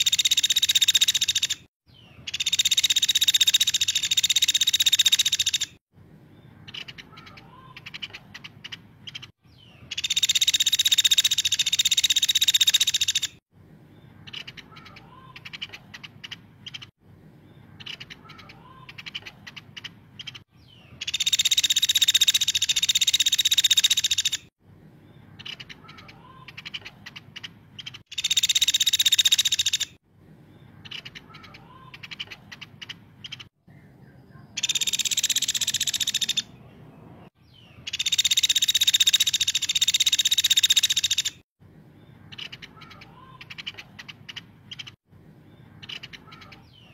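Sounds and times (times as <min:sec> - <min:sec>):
woodpecker rattling trills: 0:00.0 - 0:01.7, 0:02.3 - 0:05.8, 0:09.9 - 0:13.4, 0:21.0 - 0:24.5, 0:25.4 - 0:30.0, 0:34.6 - 0:36.5, 0:37.9 - 0:41.4
woodpecker short ticks and calls: 0:00.0 - 0:01.7, 0:02.3 - 0:05.8, 0:06.7 - 0:09.3, 0:09.9 - 0:13.4, 0:14.3 - 0:16.9, 0:17.8 - 0:20.4, 0:21.0 - 0:24.5, 0:25.4 - 0:30.0, 0:30.8 - 0:33.5, 0:34.6 - 0:36.5, 0:37.9 - 0:41.4, 0:42.3 - 0:45.0, 0:45.8 - 0:46.8.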